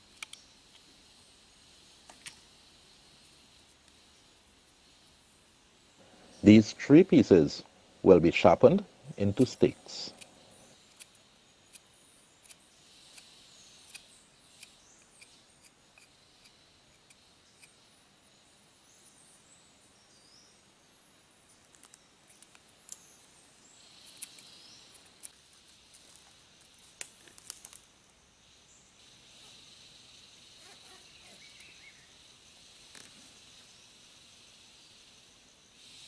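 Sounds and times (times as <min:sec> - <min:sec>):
insects: 0:00.0 - 0:36.0
bird chirps: 0:28.4 - 0:34.2.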